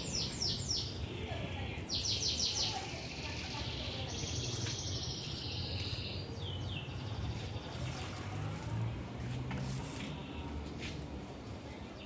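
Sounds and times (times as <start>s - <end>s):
songbird singing: 0.0s - 8.8s.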